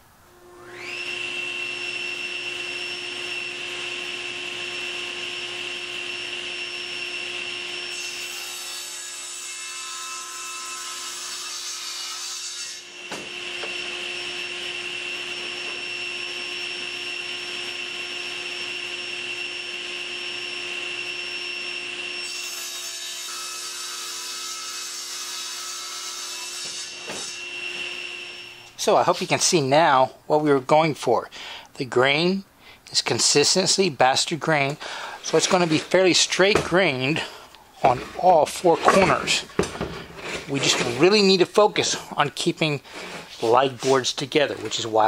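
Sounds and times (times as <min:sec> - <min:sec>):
table saw whining: 0:00.4 - 0:29.3, 0:34.6 - 0:45.0
saw blade cutting wood: 0:04.8 - 0:29.3, 0:34.6 - 0:45.0.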